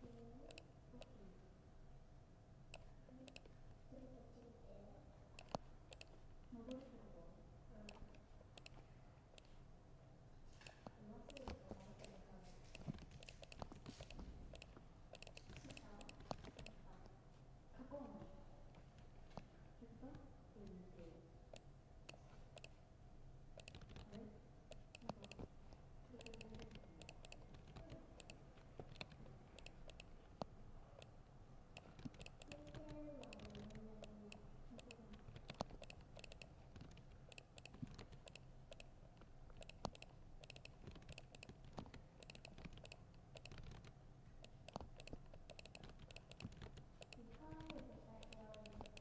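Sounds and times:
laptop keyboard typing: 5.4s - 6.9s, 7.8s - 8.8s, 10.6s - 16.9s, 21.6s - 22.8s, 23.6s - 49.0s.

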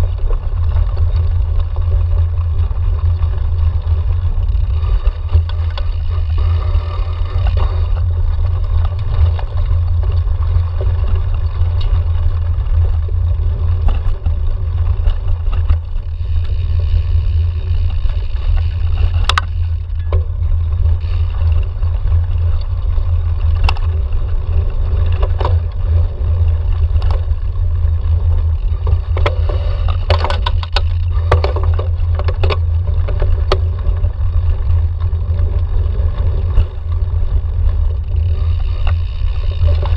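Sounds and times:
bike rattling over bumps: 0.0s - 39.9s
tyres running on dirt: 0.0s - 39.9s
wind rumble on microphone: 0.0s - 39.9s.

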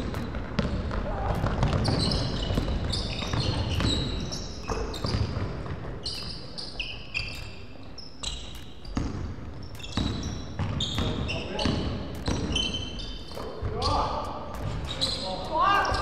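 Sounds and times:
basketball bouncing on wooden floor: 0.0s - 6.3s, 8.2s - 15.0s
sneakers squeaking on court: 0.0s - 16.0s.

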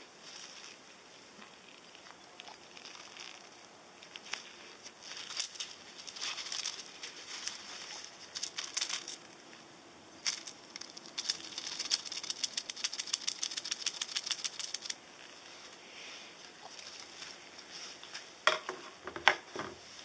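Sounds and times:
copper pennies clinking: 5.0s - 7.6s, 8.3s - 9.2s, 10.2s - 15.0s.

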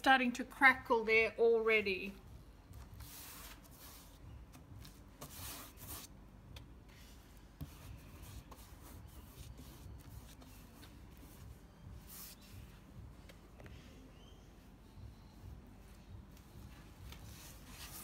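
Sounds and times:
paintbrush strokes on wood: 6.9s - 14.1s.

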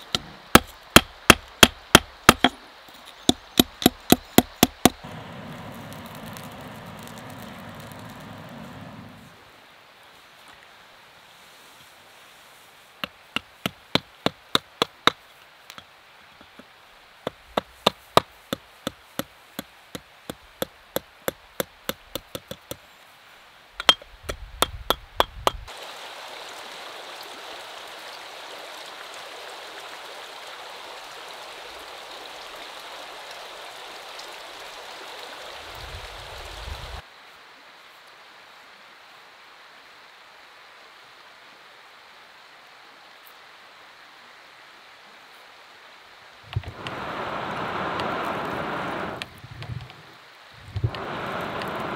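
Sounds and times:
steady rushing noise: 4.8s - 9.6s, 46.5s - 51.9s.

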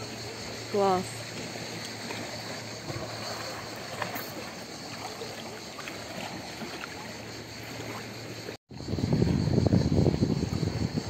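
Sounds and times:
small water splashes: 0.0s - 8.6s
seawater lapping: 0.0s - 11.0s.

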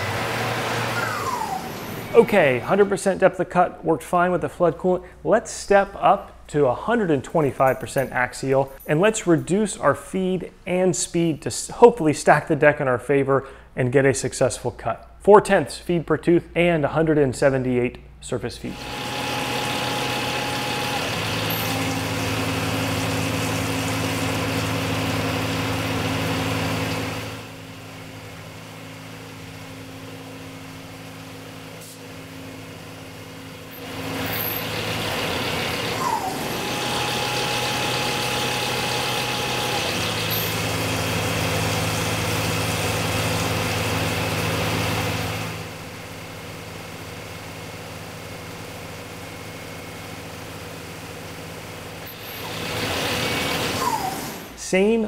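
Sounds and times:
milling machine cutting hum: 0.0s - 3.0s, 18.7s - 54.6s
coolant spray hiss: 20.6s - 27.0s.

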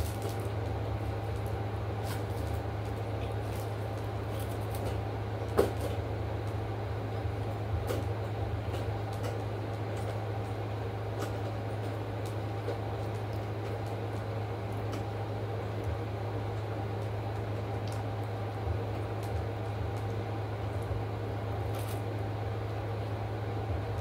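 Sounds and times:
food wrappers rustling: 0.0s - 5.0s, 21.7s - 22.1s
steady low hum: 0.0s - 24.0s.

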